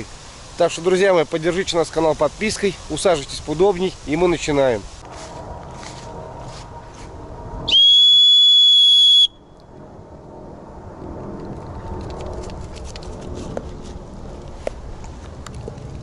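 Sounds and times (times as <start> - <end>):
shrill dog whistle blast: 7.7 - 9.4.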